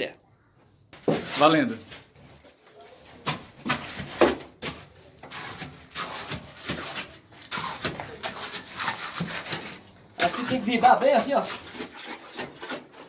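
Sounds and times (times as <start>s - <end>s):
stick jabbing wet concrete: 3.3s - 12.8s.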